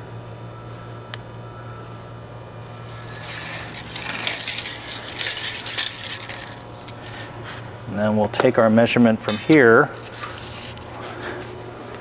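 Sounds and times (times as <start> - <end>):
tape measure retracting: 2.6 - 7.3.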